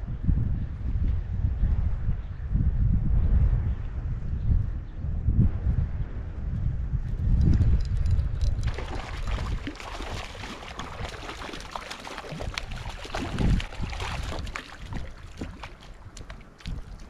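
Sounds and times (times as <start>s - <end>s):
wind rumbling on microphone: 0.0s - 17.0s
water splashing and gurgling: 7.6s - 17.0s.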